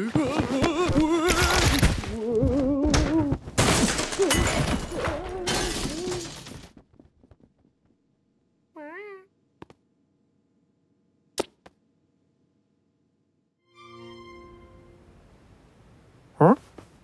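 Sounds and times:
glass breaking: 0:03.6 - 0:06.6.

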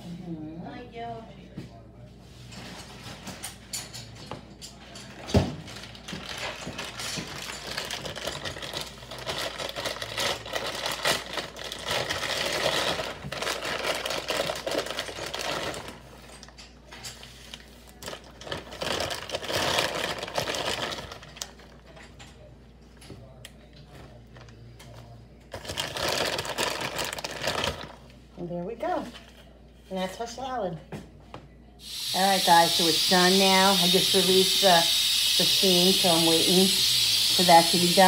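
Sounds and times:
plastic bag crinkling: 0:05.7 - 0:16.3, 0:17.5 - 0:21.7, 0:25.5 - 0:28.0.

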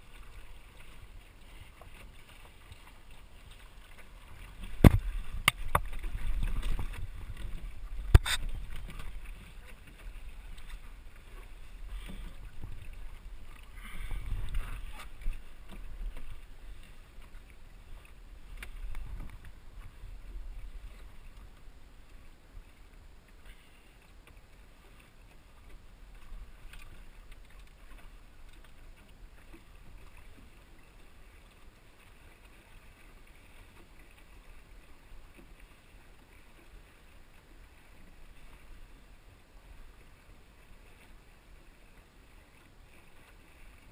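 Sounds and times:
water sloshing against hull: 0:00.0 - 0:43.9
wind rumbling on microphone: 0:04.2 - 0:22.7.

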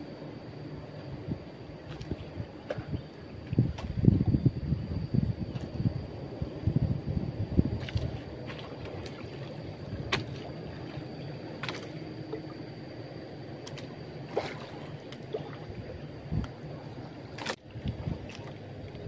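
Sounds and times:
water lapping against boat hull: 0:01.8 - 0:04.3, 0:07.7 - 0:12.6, 0:13.6 - 0:16.7, 0:17.3 - 0:19.0.

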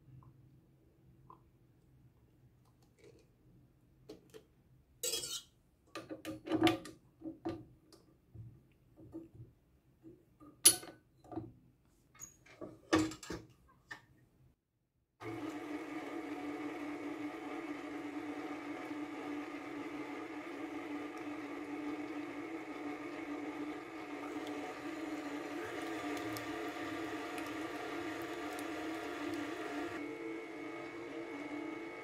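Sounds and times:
stand mixer motor humming: 0:15.2 - 0:32.0.

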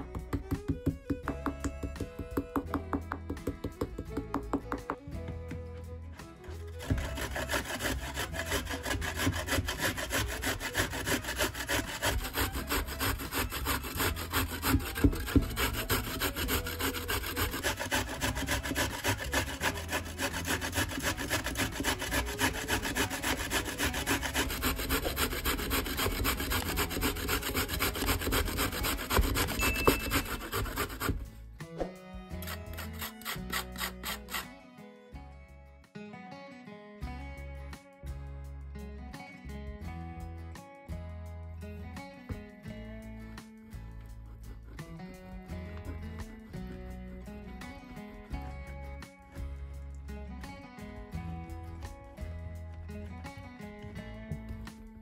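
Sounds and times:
carrot grating on metal grater: 0:06.7 - 0:31.3, 0:32.4 - 0:34.5.

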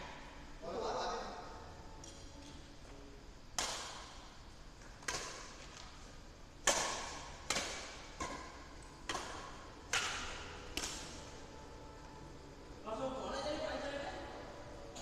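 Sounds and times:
badminton racket hitting shuttlecock: 0:06.6 - 0:11.2.

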